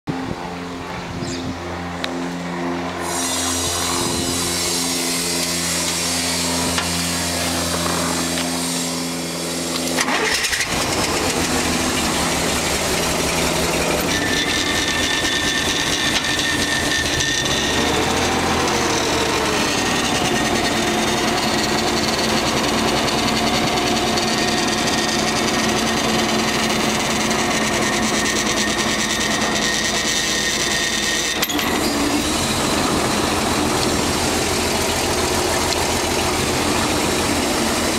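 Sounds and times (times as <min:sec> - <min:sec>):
forklift engine running: 0:00.1 - 0:37.9
high hydraulic whine: 0:00.1 - 0:37.9
starter whine: 0:00.1 - 0:37.9.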